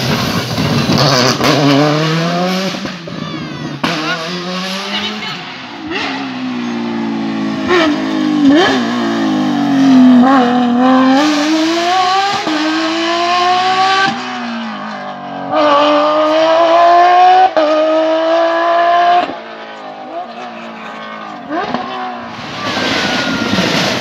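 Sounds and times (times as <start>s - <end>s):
rally car engine accelerating: 0.0s - 24.0s.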